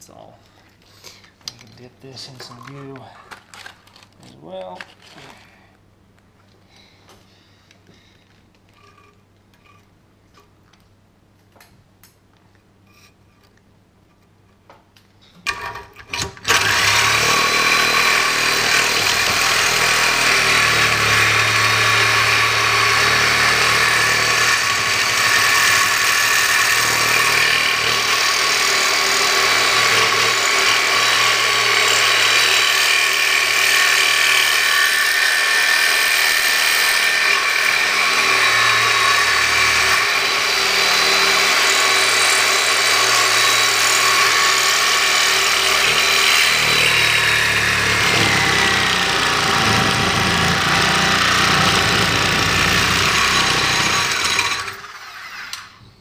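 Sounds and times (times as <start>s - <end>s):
reciprocating saw cutting steel: 16.5s - 55.8s.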